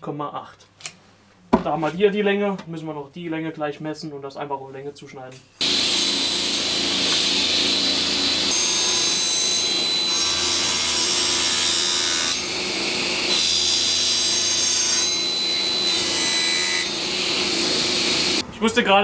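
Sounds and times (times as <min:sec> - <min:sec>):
table saw cutting wood: 0:05.6 - 0:18.4.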